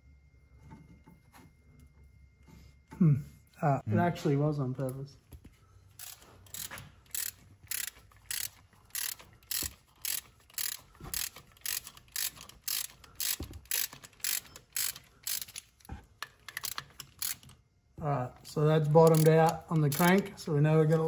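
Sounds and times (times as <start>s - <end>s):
ratchet wrench clicking: 6.0s - 17.6s, 19.0s - 20.3s.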